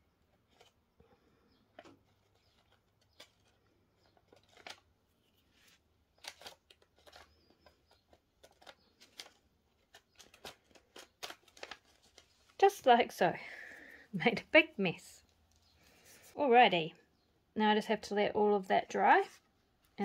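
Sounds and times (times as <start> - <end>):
paper rustling and clicking: 1.7 - 4.9, 5.6 - 12.6.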